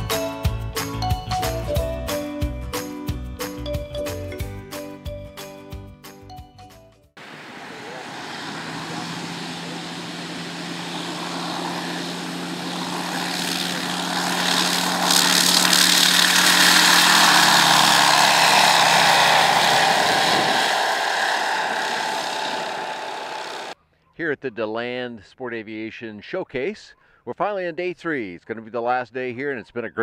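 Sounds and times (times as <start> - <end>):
light aircraft engine drone: 7.2 - 23.8.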